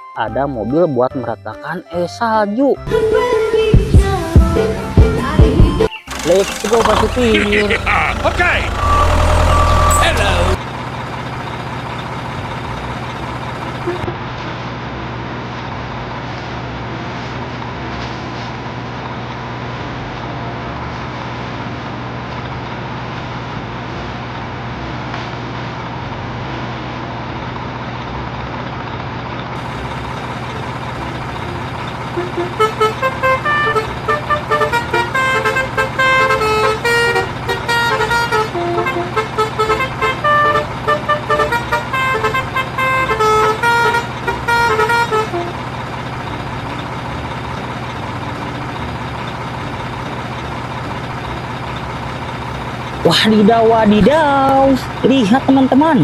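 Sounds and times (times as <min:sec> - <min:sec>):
truck engine drone: 0:02.9 - 0:56.0
multi-tone vehicle horn tune: 0:06.1 - 0:10.6, 0:13.8 - 0:14.1, 0:32.0 - 0:45.7.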